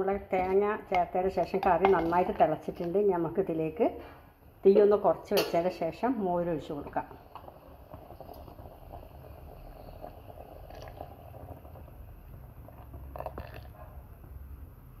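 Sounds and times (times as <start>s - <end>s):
thick curry bubbling in pot: 6.6s - 15.0s.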